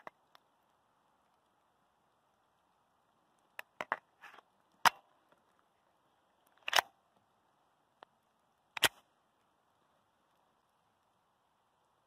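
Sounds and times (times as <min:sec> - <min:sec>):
pistol mechanical clicks: 0:06.5 - 0:07.0, 0:08.8 - 0:09.0.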